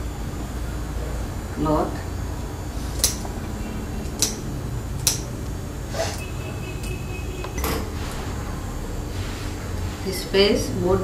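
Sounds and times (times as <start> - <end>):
scissors snipping cloth: 3.0 - 3.2, 4.1 - 4.4.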